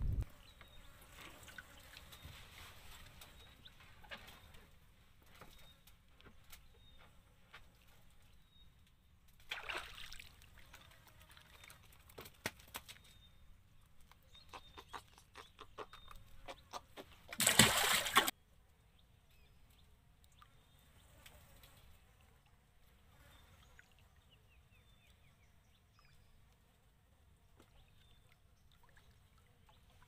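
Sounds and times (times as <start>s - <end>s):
water splashing: 9.5s - 12.0s, 17.3s - 18.3s.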